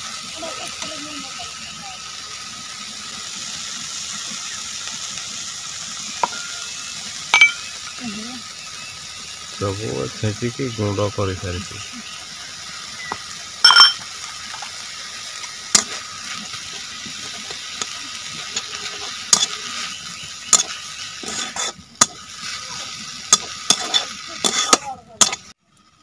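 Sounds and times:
leaves hissing while cooking: 0.0 - 26.0
metal spatula clinking and scraping: 6.2 - 6.6, 7.4 - 7.6, 13.6 - 14.8, 17.3 - 19.8, 20.5 - 22.2, 23.3 - 25.5.

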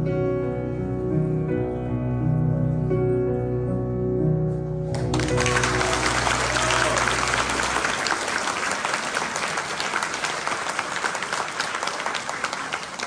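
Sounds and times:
audience applauding: 4.9 - 13.0.

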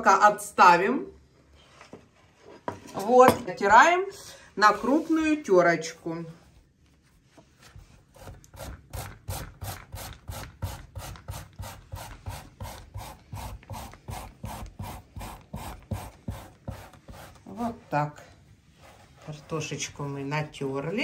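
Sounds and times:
potato grated on a grater: 8.2 - 17.8.

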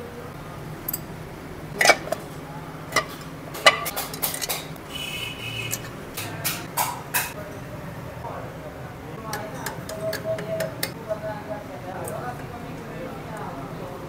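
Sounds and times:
metal tools clinking on engine: 3.0 - 4.7, 5.6 - 6.4.

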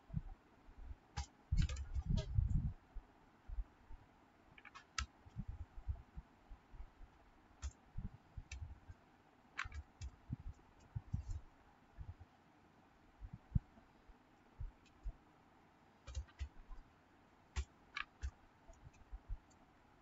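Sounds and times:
soft low thumps: 1.5 - 2.8, 10.2 - 11.4
keyboard key clicks: 9.6 - 10.2, 16.1 - 16.6.

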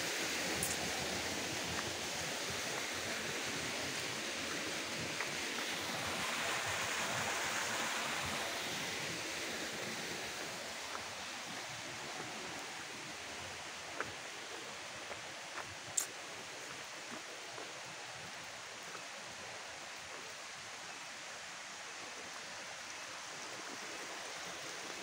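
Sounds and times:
stream water rushing: 0.0 - 25.0.

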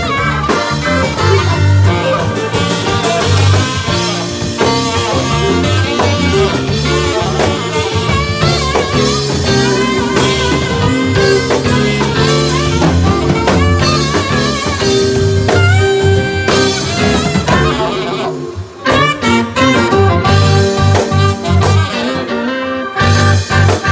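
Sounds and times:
drum kit: 0.0 - 23.9
electric guitar: 0.0 - 23.9
live blues band: 0.0 - 23.9
saxophone: 0.0 - 23.9.

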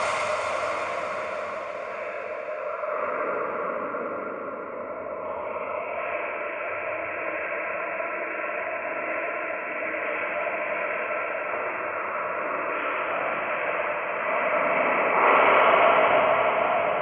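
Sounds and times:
dark ambient drone music: 0.0 - 4.7.

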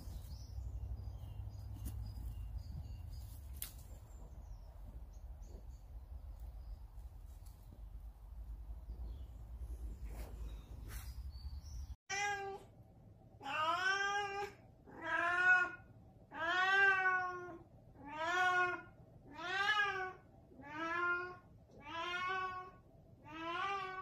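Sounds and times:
cat meowing: 13.4 - 24.0.

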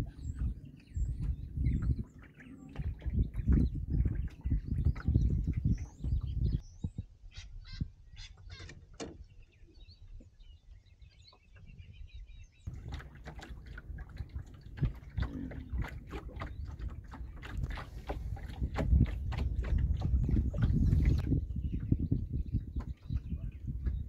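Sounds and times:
water splashing against boat hull: 0.0 - 6.6, 12.7 - 24.0
birds chirping faintly: 0.0 - 24.0.

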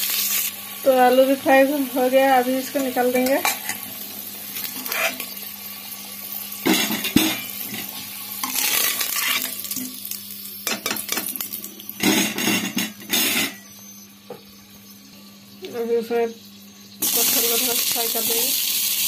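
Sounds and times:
oil sizzling: 0.0 - 19.0
metal ladle scraping a pot: 4.8 - 5.3, 8.5 - 9.5.

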